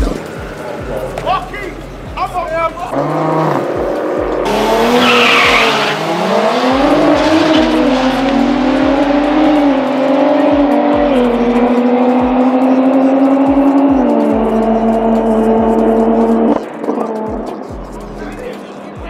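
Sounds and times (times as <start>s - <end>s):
car engine accelerating hard: 2.9s - 18.4s
tyre squeal: 4.5s - 6.1s.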